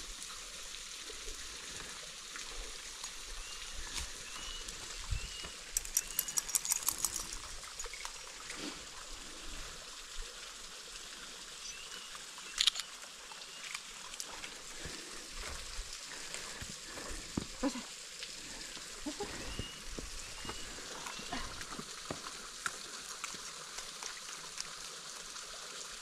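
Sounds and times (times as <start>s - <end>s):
waterfall running: 0.0s - 26.0s
bird chirping: 3.4s - 8.0s, 19.3s - 21.4s
sharp clicks and crackles: 5.5s - 8.2s, 12.5s - 13.0s.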